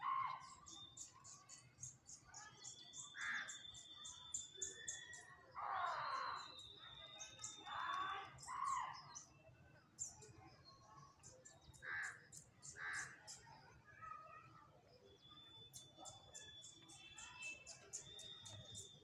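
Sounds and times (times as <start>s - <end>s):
small birds chirping: 0.0s - 19.0s
crows cawing: 11.8s - 12.2s.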